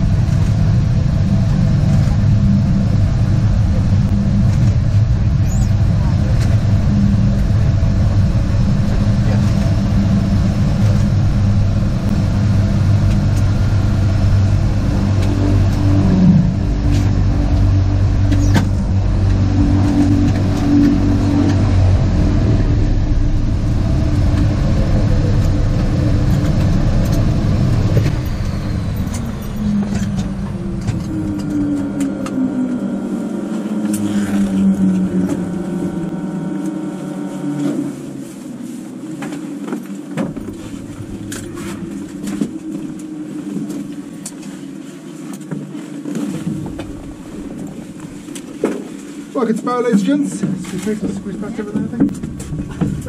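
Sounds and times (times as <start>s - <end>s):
turboprop engine and propeller: 0.0s - 53.0s.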